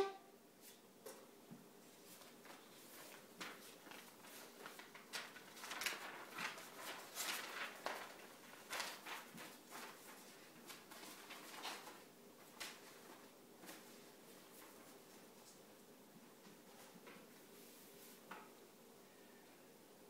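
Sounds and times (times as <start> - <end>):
paper sheets rustling: 2.0 - 15.6.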